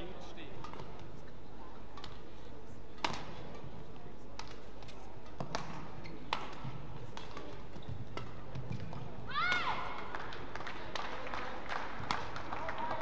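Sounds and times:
low arena background: 0:00.0 - 0:13.0
rackets striking shuttlecock: 0:00.5 - 0:01.2, 0:01.9 - 0:02.3, 0:03.0 - 0:10.2.

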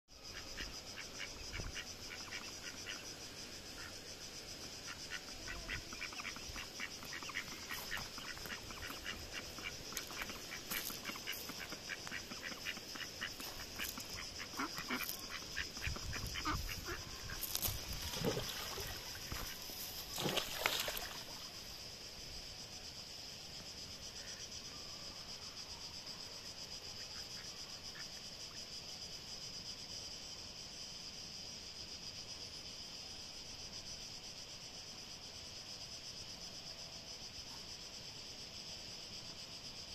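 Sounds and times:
ducks quacking: 0:05.1 - 0:17.6.

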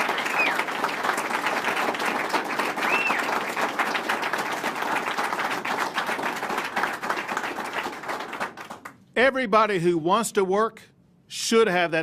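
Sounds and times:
audience applauding: 0:00.0 - 0:08.9
high whoop: 0:02.8 - 0:03.3.

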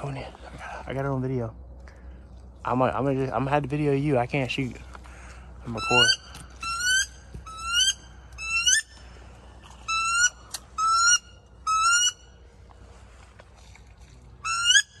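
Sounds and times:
wood duck squealing whistles: 0:05.8 - 0:09.0, 0:09.8 - 0:12.3, 0:14.4 - 0:15.0.

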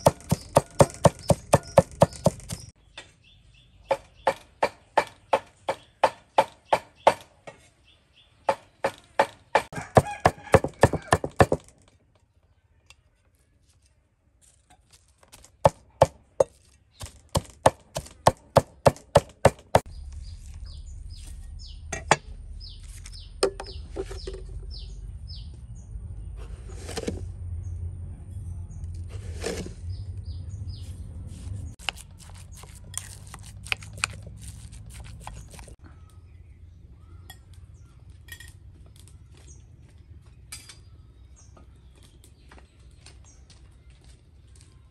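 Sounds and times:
chirps: 0:00.0 - 0:04.5, 0:19.8 - 0:26.6
low steady rumble: 0:19.9 - 0:31.8.

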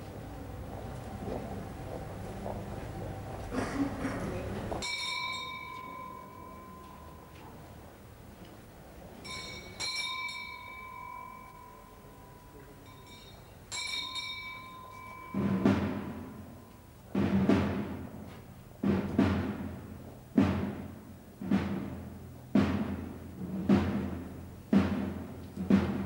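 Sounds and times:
bell ringing: 0:04.8 - 0:07.6, 0:09.2 - 0:16.8
slow deep drum beats: 0:15.3 - 0:26.0.

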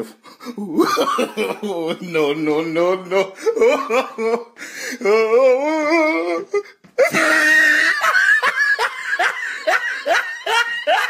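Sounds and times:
loud laughter: 0:07.0 - 0:11.0.

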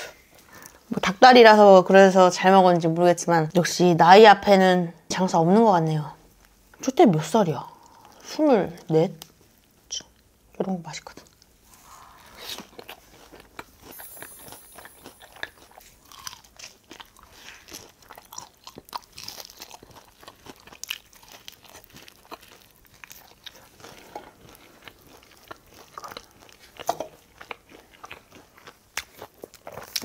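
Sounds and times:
crunchy biting and chewing: 0:11.4 - 0:30.0.

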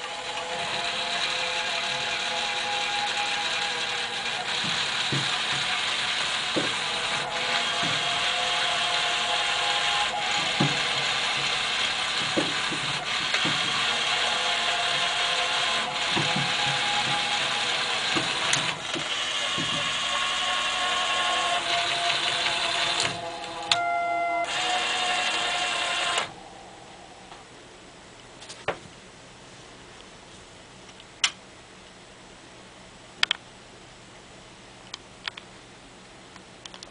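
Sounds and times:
motor and gears whirring: 0:00.0 - 0:23.8, 0:24.4 - 0:26.4.

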